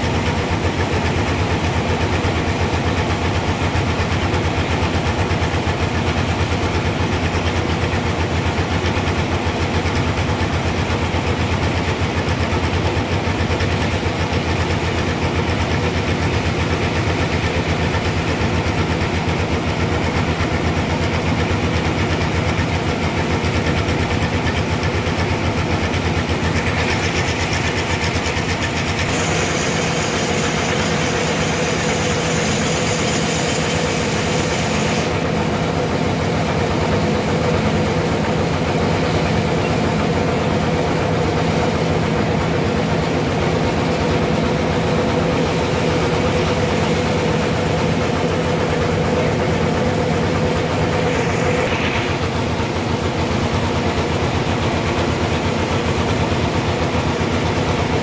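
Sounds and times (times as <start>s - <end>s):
stationary engine running: 0.0s - 58.0s
high hiss: 26.5s - 35.8s.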